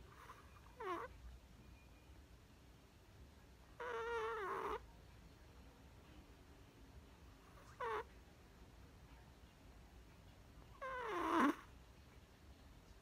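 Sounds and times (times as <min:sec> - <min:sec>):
puppy whimpering in sleep: 0:00.0 - 0:01.2, 0:03.7 - 0:04.8, 0:07.4 - 0:08.2, 0:10.7 - 0:11.8.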